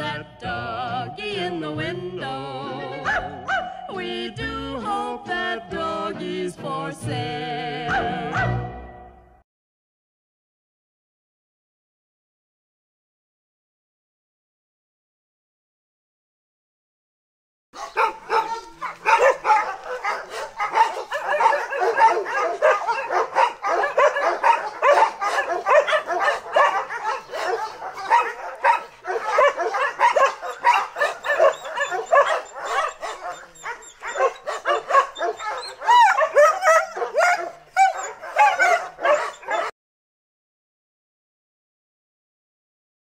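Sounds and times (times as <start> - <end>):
dogs barking and yapping: 2.9 - 3.9, 7.9 - 8.7, 17.8 - 39.8
dogs whimpering and whining: 17.8 - 39.7.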